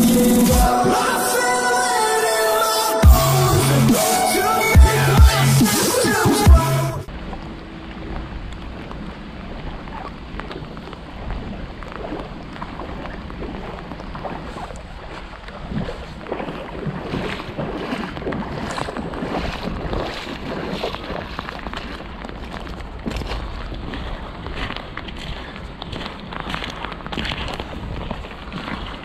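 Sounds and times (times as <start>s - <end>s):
rain on a river: 7.1s - 29.0s
wind rumbling on microphone: 7.1s - 29.0s
small crunches and clicks: 21.1s - 29.0s.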